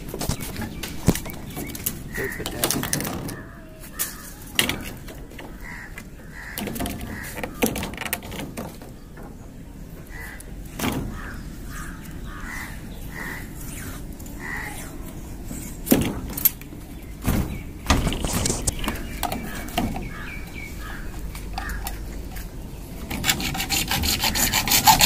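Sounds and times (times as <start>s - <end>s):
crows cawing: 2.1s - 4.8s, 5.4s - 7.8s, 10.0s - 13.6s, 14.4s - 14.9s, 19.0s - 22.0s.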